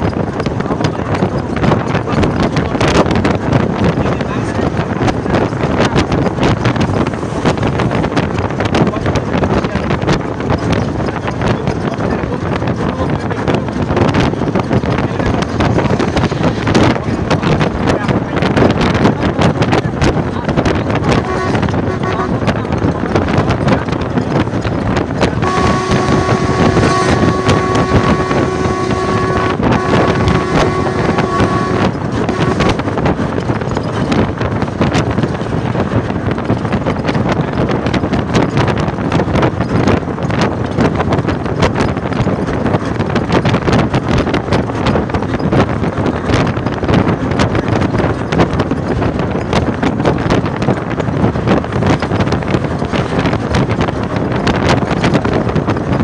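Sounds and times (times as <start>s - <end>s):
road vehicle running noise: 0.0s - 56.0s
wind buffeting microphone: 0.0s - 56.0s.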